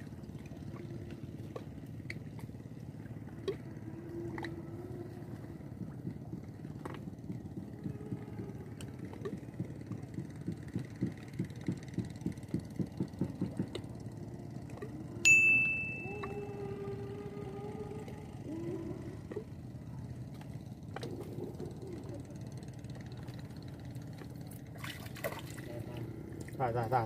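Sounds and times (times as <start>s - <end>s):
small boat engine chugging: 0.0s - 27.0s
sharp metallic ding: 15.3s - 16.1s.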